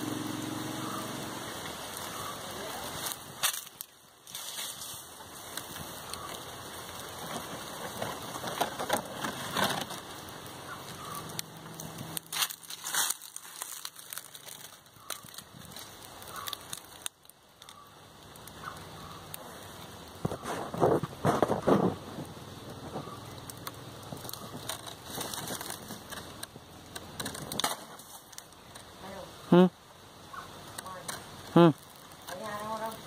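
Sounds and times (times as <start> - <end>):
dry leaves rustling and crunching: 0.1 - 29.3, 30.8 - 33.0.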